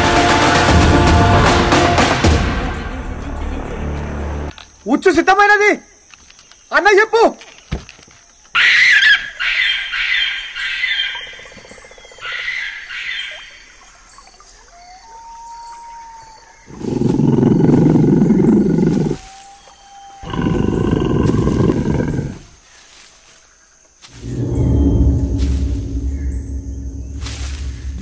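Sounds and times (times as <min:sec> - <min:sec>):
high wailing calls: 0:08.5 - 0:11.5, 0:14.4 - 0:22.4
tiger roaring: 0:16.7 - 0:19.2, 0:20.2 - 0:22.5.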